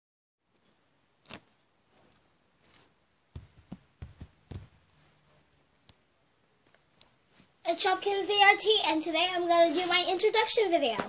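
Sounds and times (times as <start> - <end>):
paper rustling and knocks: 1.2 - 4.9.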